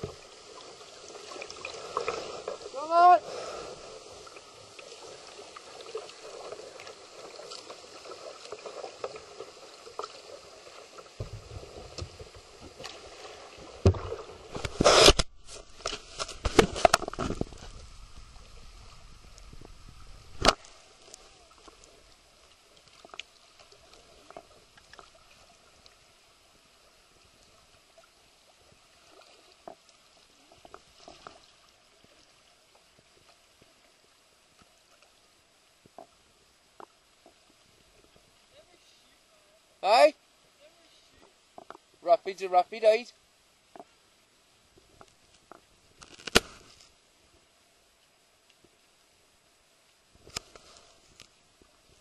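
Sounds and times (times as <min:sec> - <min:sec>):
river water rushing around canoe: 0:00.0 - 0:34.5.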